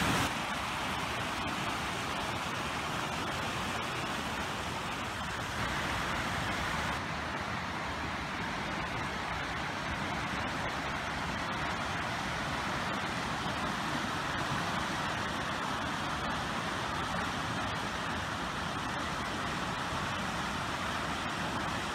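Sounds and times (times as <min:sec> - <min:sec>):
floodwater rushing in creek: 0:00.0 - 0:21.9.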